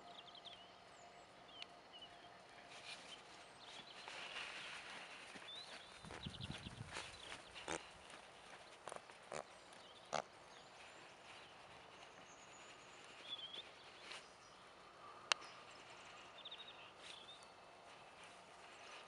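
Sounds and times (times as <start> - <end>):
pony walking on sand: 2.6 - 14.7
pony snorting: 7.5 - 8.1.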